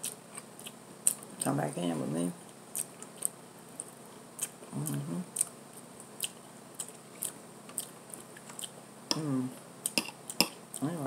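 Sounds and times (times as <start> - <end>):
closed-mouth hum: 0.0 - 11.0
wet chewing: 6.1 - 8.8.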